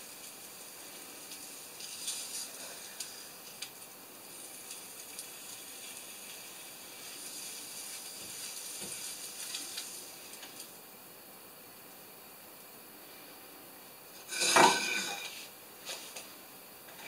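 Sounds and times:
food sizzling in a frying pan: 0:00.0 - 0:11.7, 0:14.1 - 0:15.5.

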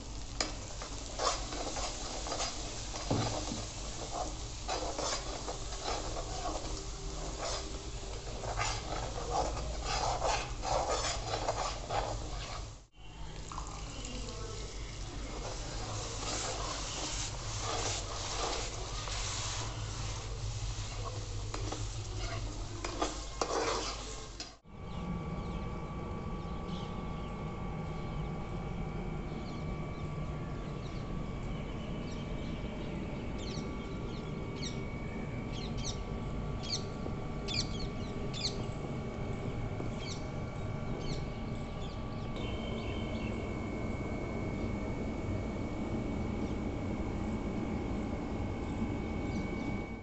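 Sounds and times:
spices frying in oil: 0:00.0 - 0:24.6
steady hum: 0:00.0 - 0:50.0
metal spoon scraping pan: 0:00.4 - 0:12.8, 0:15.3 - 0:24.6.

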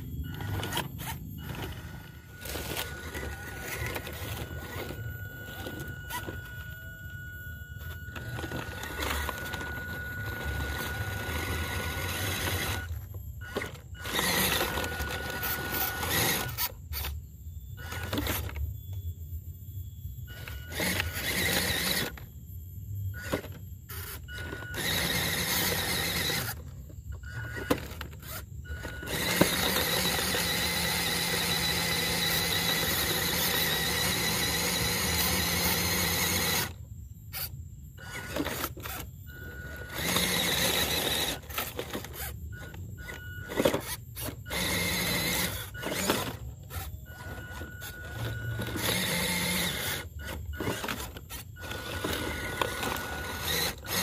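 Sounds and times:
electric motor and gearbox whining: 0:00.0 - 0:54.0.

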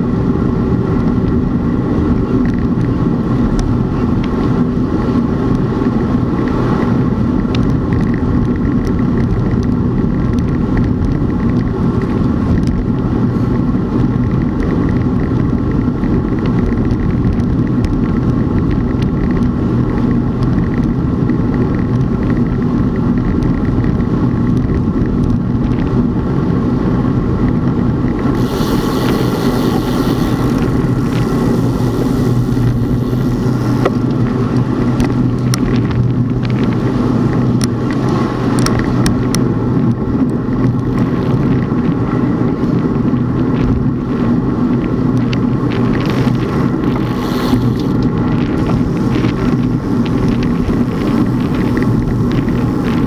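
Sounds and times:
moving vehicle hum: 0:00.0 - 0:53.0
high hiss: 0:28.3 - 0:33.9, 0:47.0 - 0:48.0.

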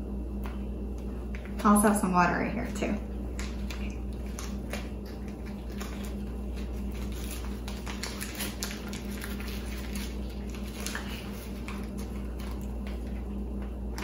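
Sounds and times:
steady low hum: 0:00.0 - 0:14.0
seaweed sheet crackling: 0:03.4 - 0:13.0.

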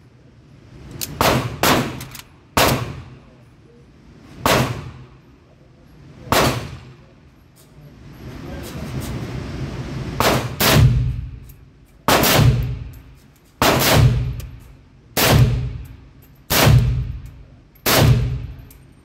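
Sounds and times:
pistol shots ringing: 0:12.1 - 0:12.9, 0:13.6 - 0:14.4, 0:17.8 - 0:18.7.

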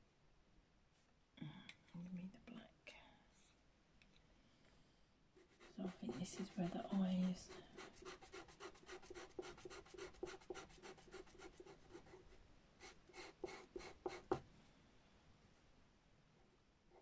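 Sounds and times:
pencil scratching on paper: 0:05.4 - 0:14.4.

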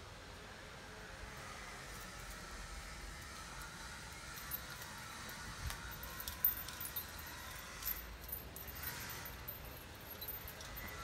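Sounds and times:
light metallic jingling: 0:03.2 - 0:11.0.

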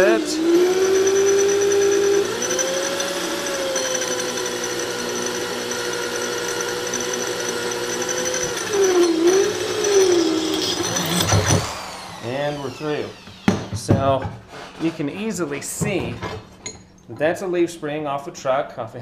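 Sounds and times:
hand drill cutting steel: 0:00.0 - 0:13.9.

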